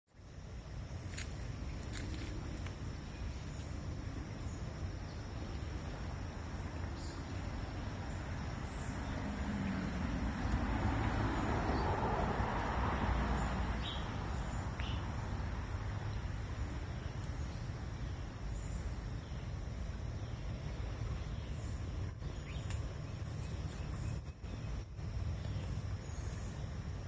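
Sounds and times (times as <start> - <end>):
creek flowing: 0.2 - 27.0.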